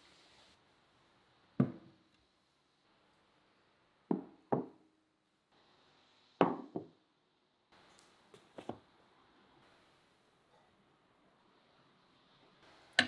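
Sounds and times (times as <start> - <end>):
dishes knocking on wooden table: 4.1 - 4.7.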